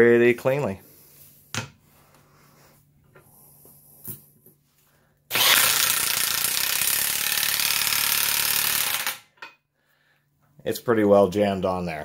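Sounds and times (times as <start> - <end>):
impact wrench hammering: 5.3 - 9.6.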